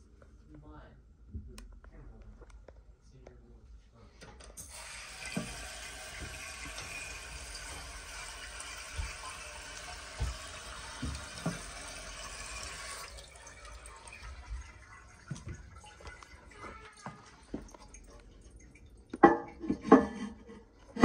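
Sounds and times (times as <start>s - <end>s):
toilet tank refilling hiss: 4.6s - 18.2s.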